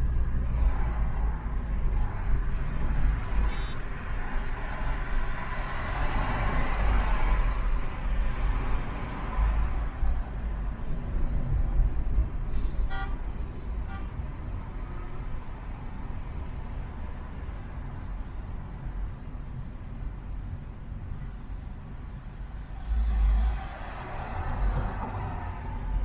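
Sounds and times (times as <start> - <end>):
car road noise: 0.0 - 26.0
vehicle horn toot: 12.9 - 13.2.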